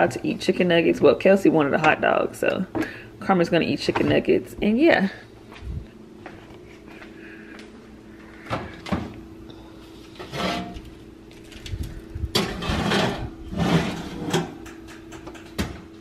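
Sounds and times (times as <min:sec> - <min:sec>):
steady low hum: 0:00.0 - 0:16.0
baking sheet sliding onto rack: 0:10.2 - 0:10.8, 0:12.4 - 0:14.5
metal clunks and scrapes: 0:10.2 - 0:10.9, 0:12.3 - 0:14.7.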